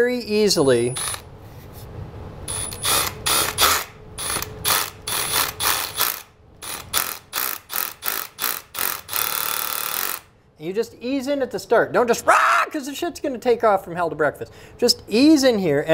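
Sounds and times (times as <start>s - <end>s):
rotary hammer drilling concrete: 0.9s - 1.2s, 2.5s - 10.3s.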